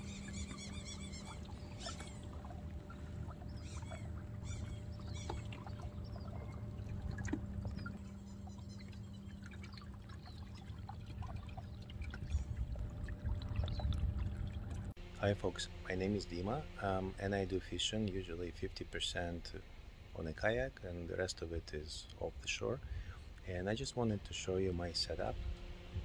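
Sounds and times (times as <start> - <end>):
bird chirps: 0.0 - 6.6
low steady hum: 0.0 - 26.0
water lapping at hull: 0.0 - 26.0.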